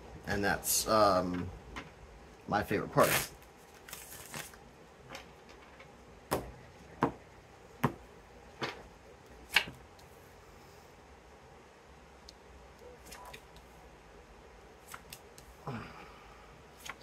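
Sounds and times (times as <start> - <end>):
cards rustling: 3.0 - 4.6, 14.8 - 15.6.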